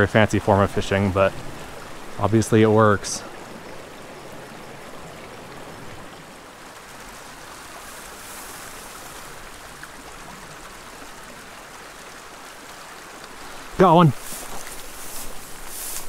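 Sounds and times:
creek running over gravel: 0.0 - 16.0.

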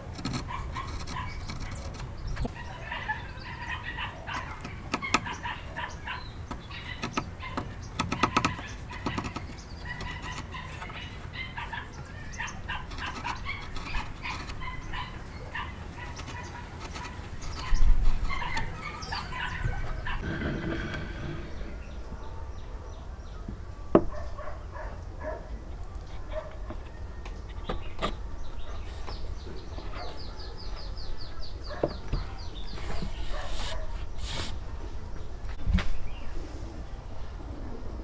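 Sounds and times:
chisel cutting wood clicks: 0.0 - 2.6, 6.5 - 11.0, 12.8 - 15.0, 16.0 - 19.4
chickens clucking: 0.4 - 22.3.

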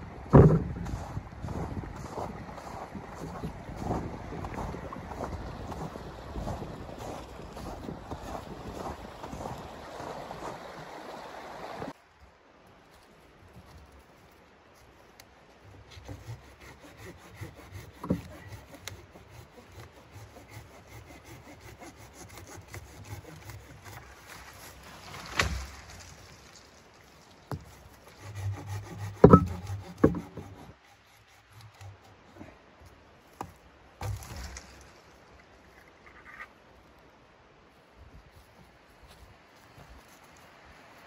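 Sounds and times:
hand saw cutting wood: 15.7 - 25.6, 27.5 - 32.2
branch cracking: 24.0 - 27.6, 34.0 - 35.2
hard knocks: 29.1 - 30.4.

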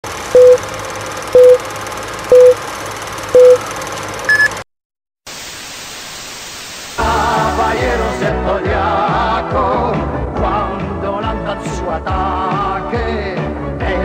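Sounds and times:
countdown beeps with clicks: 0.4 - 0.6, 1.4 - 1.6, 2.3 - 2.6, 3.4 - 3.6, 4.3 - 4.6
tv static hiss: 5.3 - 7.6.

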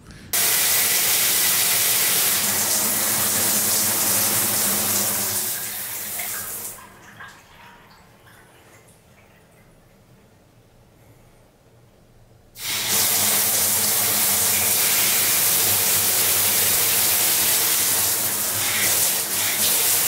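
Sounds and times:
shower water spraying: 0.4 - 6.8, 12.6 - 20.0
faint water drips: 6.1 - 10.4.

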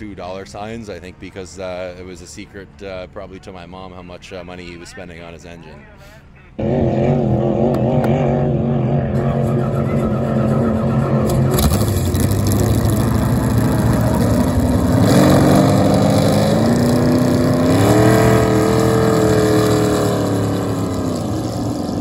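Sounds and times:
race boat engine running hard: 6.6 - 22.0.

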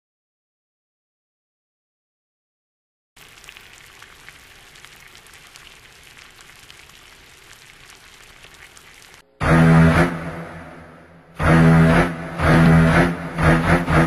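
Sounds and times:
food sizzling and crackling in pot: 3.2 - 9.2
loud low-pitched steady sound: 9.2 - 14.0.

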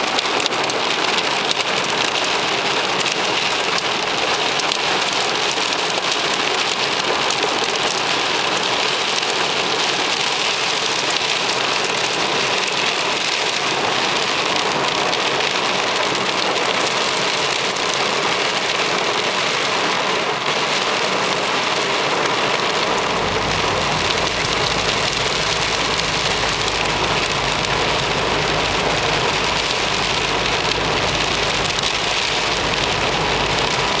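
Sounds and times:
rain and hail drumming on car roof: 0.0 - 34.0
steady low rumble: 22.6 - 34.0.

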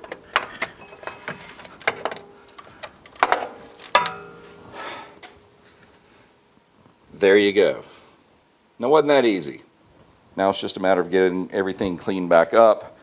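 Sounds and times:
metal clicks and clunks: 0.0 - 4.6
metal scraping: 3.2 - 5.4.

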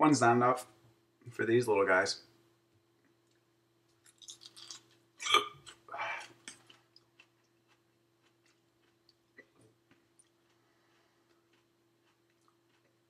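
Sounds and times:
wet chewing clicks: 4.0 - 5.0, 5.6 - 13.0
person hiccuping: 5.2 - 6.2.

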